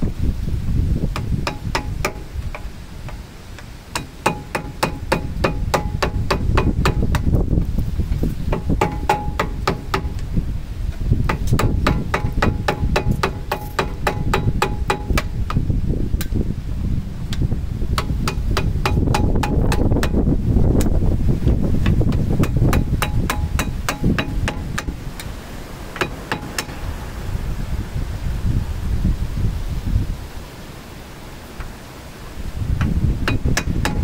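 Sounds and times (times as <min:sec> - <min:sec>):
hammer striking metal punch: 0:01.2 - 0:02.7, 0:03.9 - 0:07.3, 0:08.5 - 0:10.2, 0:11.3 - 0:15.6, 0:18.0 - 0:20.2, 0:21.8 - 0:25.0, 0:26.0 - 0:26.8, 0:33.2 - 0:34.0.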